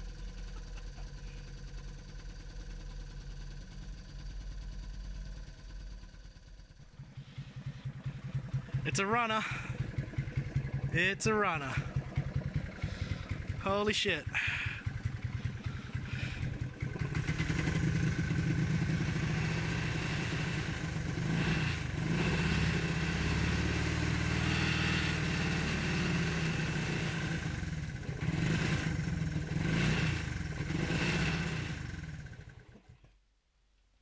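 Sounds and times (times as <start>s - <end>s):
small motorcycle engine revving: 6.8s - 33.0s.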